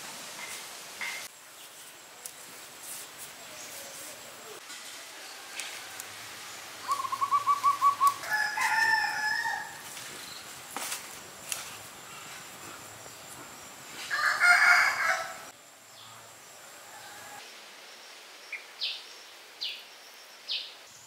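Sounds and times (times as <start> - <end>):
bird calls: 6.5 - 10.6.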